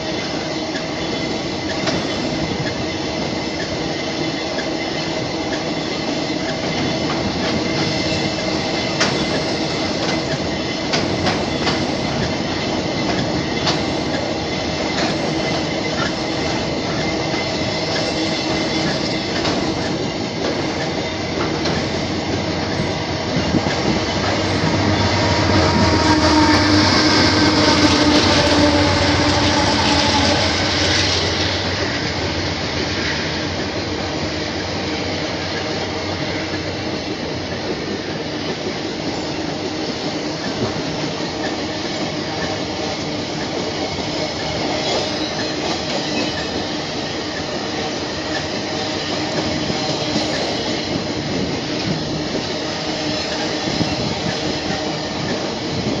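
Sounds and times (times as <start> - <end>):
train wagons rolling past: 0.0 - 56.0
wheels clacking over rail joints: 6.5 - 25.9.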